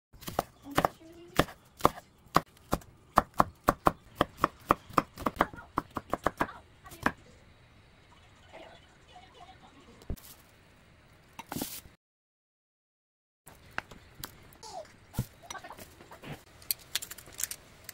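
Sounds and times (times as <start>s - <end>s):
knife chopping on wooden board: 0.2s - 7.2s.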